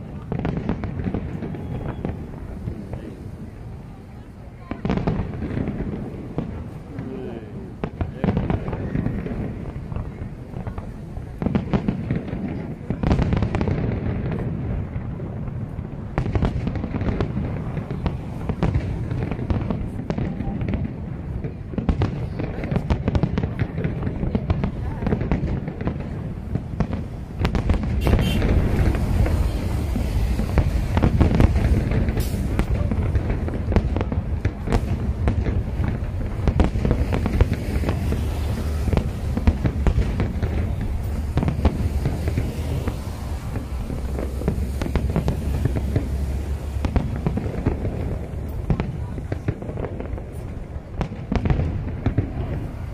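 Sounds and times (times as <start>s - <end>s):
fireworks bursting: 0.0s - 52.9s
fireworks shell bursts: 27.9s - 32.8s.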